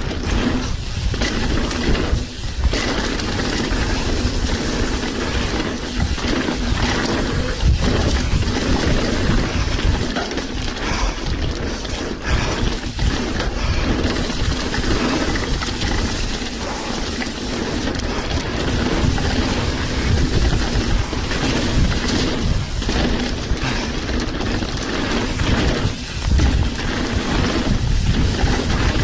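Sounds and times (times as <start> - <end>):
wind buffeting microphone: 0.0 - 11.6, 12.2 - 29.0
bike tyres rumbling over stones: 0.0 - 29.0
sharp jolts: 12.2 - 29.0.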